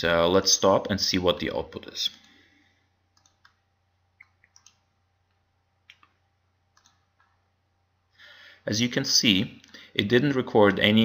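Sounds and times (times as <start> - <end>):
faint computer mouse clicks: 3.2 - 3.6, 6.8 - 7.4.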